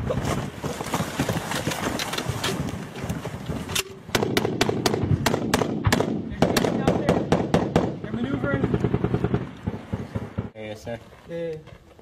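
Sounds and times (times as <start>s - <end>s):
gunfire: 4.1s - 10.5s.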